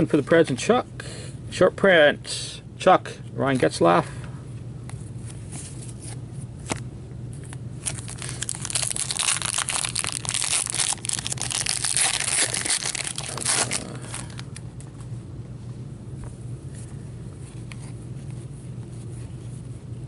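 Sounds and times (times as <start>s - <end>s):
foil wrapper crinkling and tearing: 7.8s - 14.5s.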